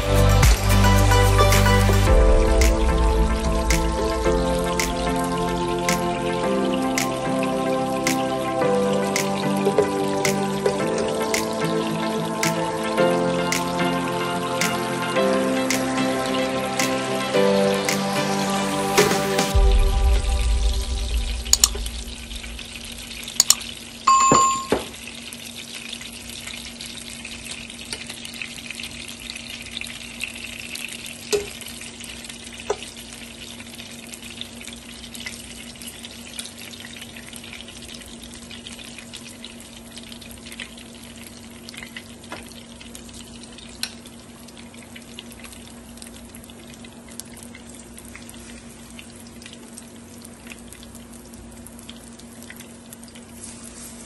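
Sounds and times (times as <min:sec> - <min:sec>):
low steady hum: 0:02.1 - 0:08.6, 0:19.6 - 0:24.8
food sizzling in a pan: 0:02.8 - 0:24.0, 0:24.8 - 0:54.0
short loud beep: 0:24.1 - 0:24.8.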